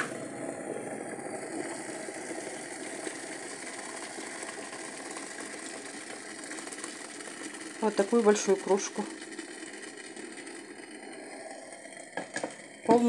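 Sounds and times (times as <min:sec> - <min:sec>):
water pouring into glass mug: 0:00.0 - 0:13.0.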